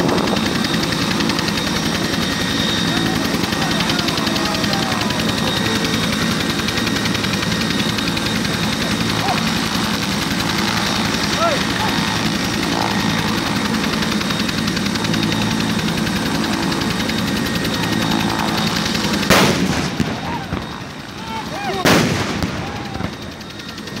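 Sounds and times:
steady engine hum: 0:00.0 - 0:24.0
ceremonial salute shots echoing: 0:19.3 - 0:20.7, 0:21.8 - 0:23.1.

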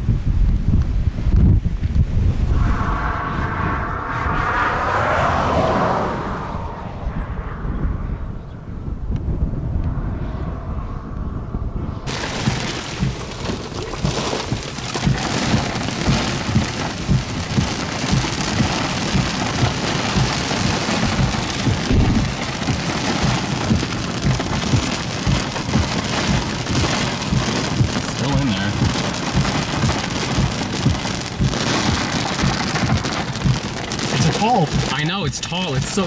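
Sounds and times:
heavy rain on car windshield: 0:12.1 - 0:36.0.

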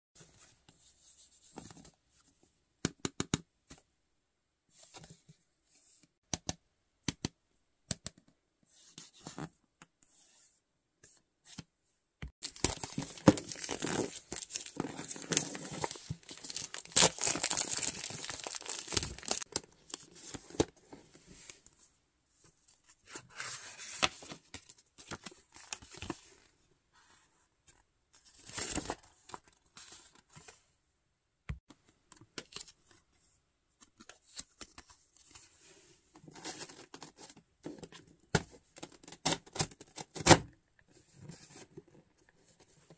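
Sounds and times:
clicks and taps: 0:06.2 - 0:08.4
packaging tearing and crinkling: 0:12.4 - 0:19.5
paper rustling: 0:12.4 - 0:20.6.

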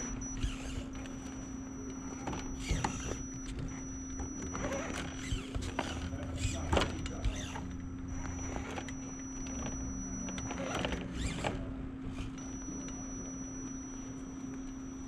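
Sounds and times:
toy car motor whining: 0:00.0 - 0:14.0.

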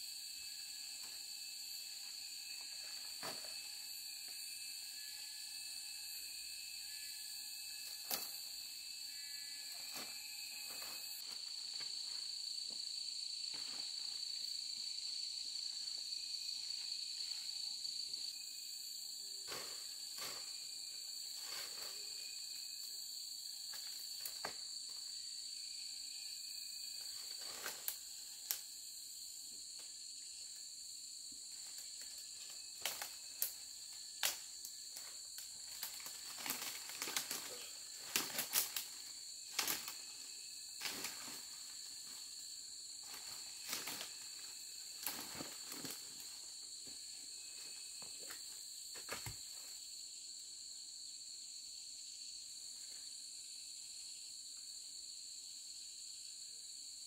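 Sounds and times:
insects chirring: 0:00.0 - 0:57.0.

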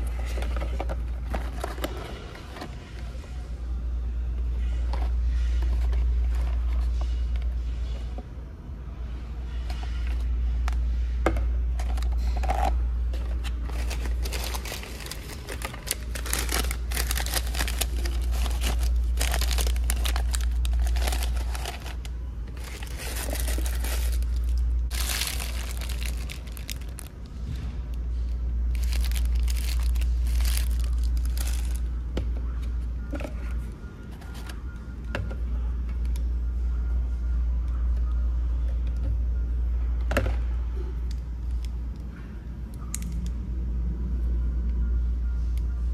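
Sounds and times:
steady low rumble: 0:02.7 - 0:45.9
paper packaging crinkling: 0:11.8 - 0:27.1, 0:28.7 - 0:31.9.

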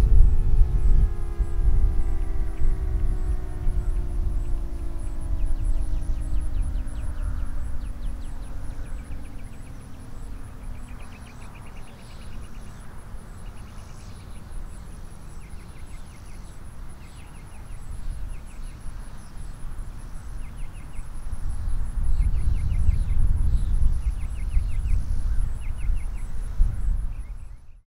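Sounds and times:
siren winding down: 0:00.0 - 0:09.8
wind rumble on microphone: 0:00.0 - 0:27.8
insects chirping: 0:00.1 - 0:27.8.

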